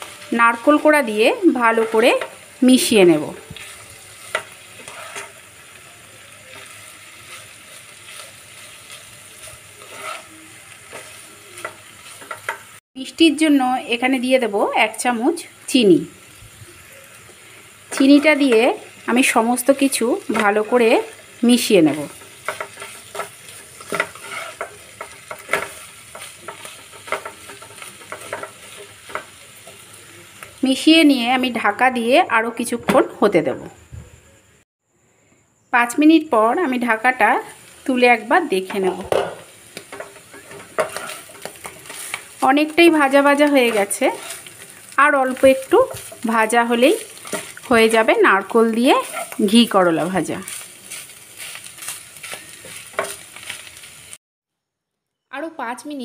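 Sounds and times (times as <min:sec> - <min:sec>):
food sizzling in a pan: 0:00.0 - 0:34.7, 0:35.3 - 0:54.2
spatula scraping pan: 0:03.3 - 0:05.7, 0:06.4 - 0:12.8, 0:19.8 - 0:30.0, 0:38.7 - 0:54.0.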